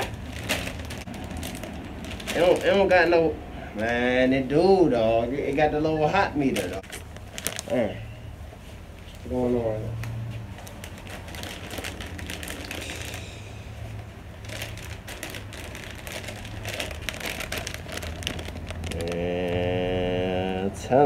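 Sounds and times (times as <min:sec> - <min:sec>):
plastic snack bag crinkling: 0:00.0 - 0:03.2, 0:06.4 - 0:08.0, 0:10.5 - 0:13.5, 0:14.3 - 0:19.8.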